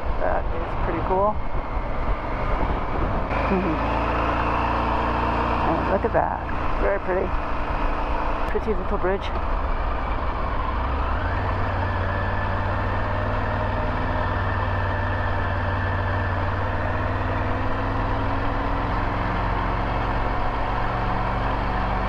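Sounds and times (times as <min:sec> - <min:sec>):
motorcycle engine running: 0:00.0 - 0:22.0
road and wind noise: 0:00.0 - 0:22.0.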